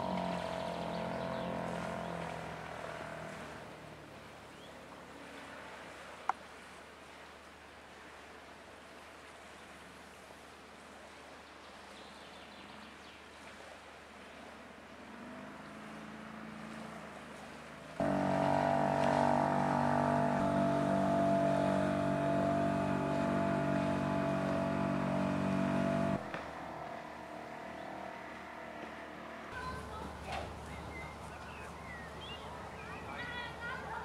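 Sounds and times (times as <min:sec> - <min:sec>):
outboard motor running: 0:00.0 - 0:05.0, 0:14.9 - 0:34.0
faint outdoor background: 0:00.0 - 0:34.0.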